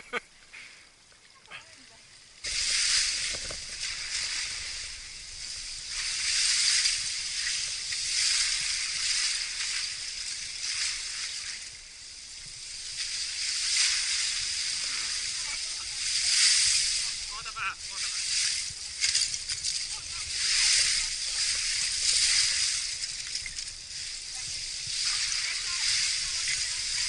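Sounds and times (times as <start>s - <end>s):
water sloshing: 1.7s - 27.0s
ice shards rustling together: 18.4s - 24.3s.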